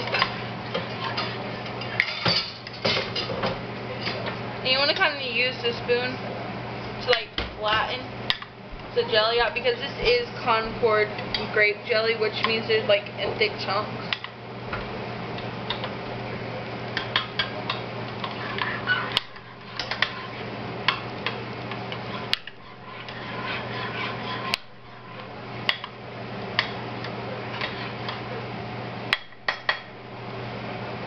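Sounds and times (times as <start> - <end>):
spoon scraping a pot: 18.2 - 20.5, 21.7 - 25.9, 27.5 - 28.2.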